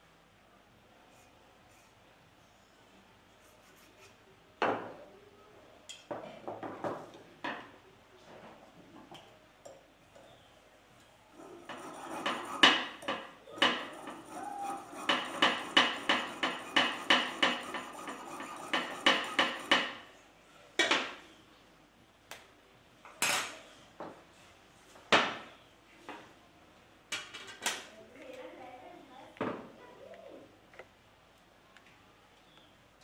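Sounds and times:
hand saw cutting metal rod: 11.4 - 20.0.

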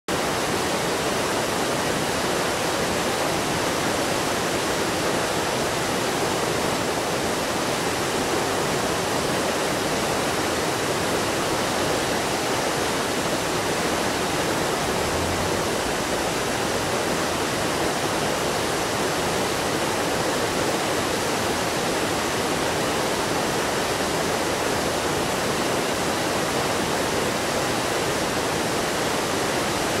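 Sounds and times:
water rushing over rocks: 0.1 - 30.0.

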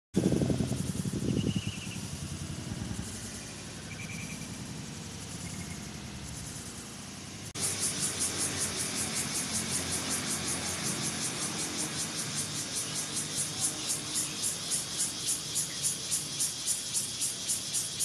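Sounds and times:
animal high-pitched pulsing call: 0.9 - 5.9.

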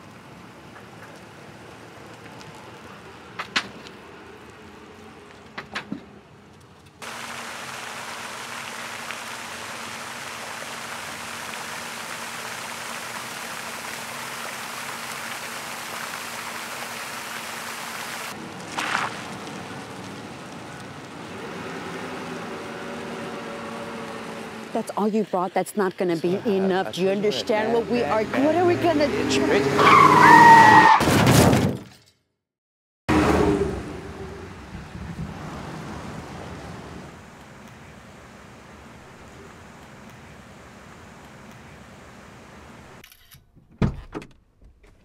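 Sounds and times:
fountain spray splashing: 7.0 - 29.6.

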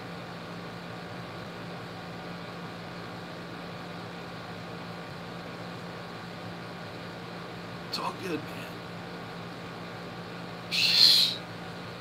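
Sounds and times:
steady low hum: 0.0 - 12.0
even hiss: 10.7 - 11.4.

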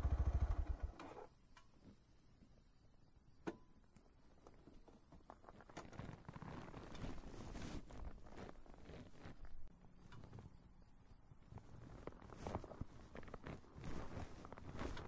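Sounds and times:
clothing and gear rustling: 4.3 - 10.7, 11.3 - 15.0.

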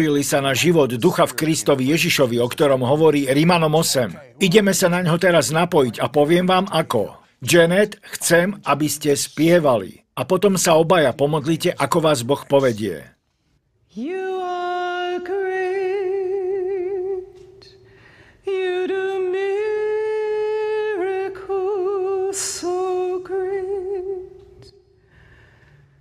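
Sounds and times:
woman singing unaccompanied: 13.9 - 17.6, 18.5 - 24.7.

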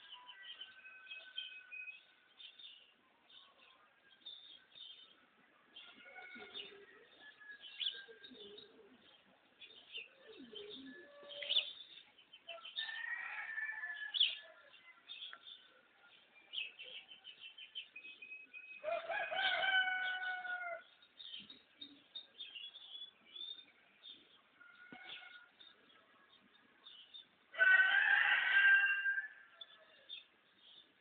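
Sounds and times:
small birds chirping: 0.0 - 28.0
rooster crowing: 12.8 - 14.4, 18.8 - 20.8, 27.6 - 29.5.

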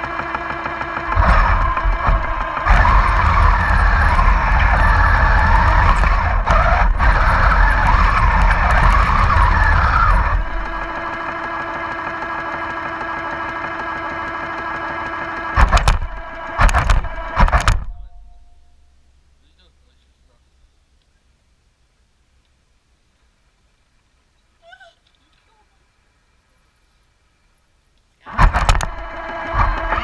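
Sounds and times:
short loud bursts: 0.0 - 18.8
model tank motors whining: 0.0 - 19.0, 28.2 - 30.0
engine idle hum: 0.0 - 30.0.

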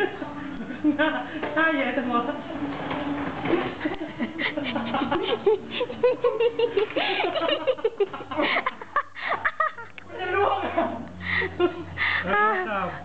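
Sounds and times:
people laughing and giggling: 0.2 - 1.4, 3.4 - 12.3.

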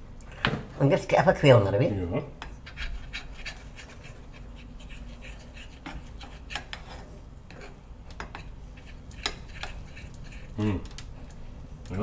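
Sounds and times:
spoon scraping and tapping pan: 5.6 - 10.5.

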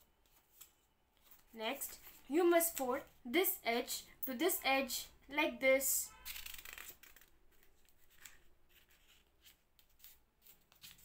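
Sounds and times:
paper rustling and crinkling: 6.3 - 11.0
soft paper crackles: 6.3 - 11.0.

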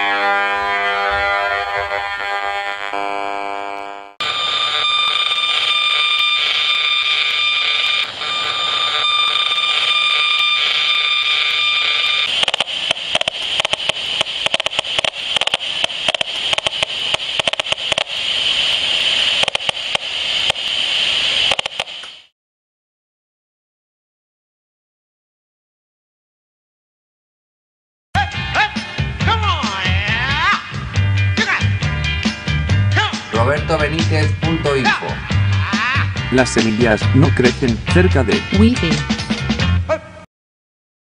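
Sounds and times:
loud static hiss: 0.9 - 22.3, 30.8 - 39.1
steady high tones: 4.2 - 22.0
dense rapid crackle: 12.2 - 22.3.

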